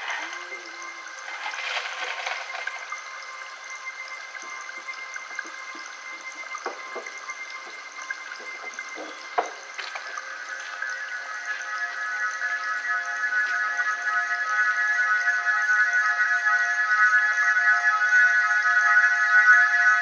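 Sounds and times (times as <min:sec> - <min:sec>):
running water: 0:00.0 - 0:13.8.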